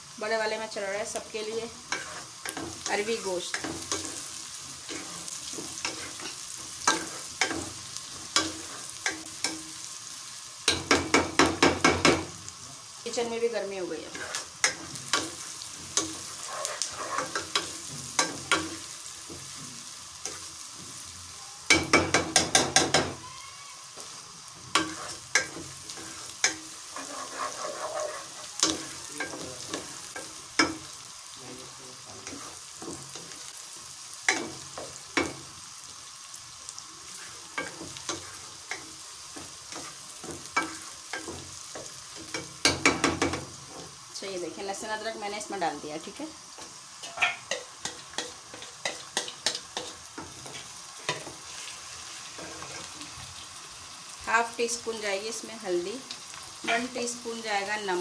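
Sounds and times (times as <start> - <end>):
onions sizzling in oil: 0.0 - 58.0.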